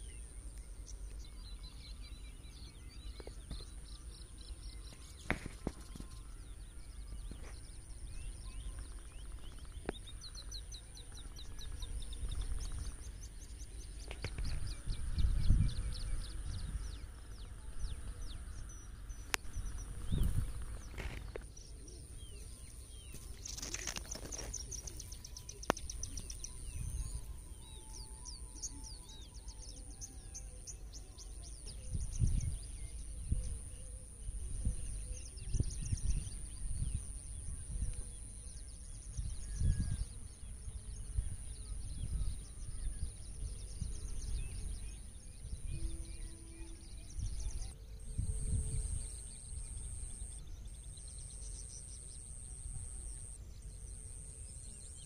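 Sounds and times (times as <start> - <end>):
birds chirping: 0.0 - 55.0
wind buffeting microphone: 2.1 - 28.4, 31.2 - 51.1.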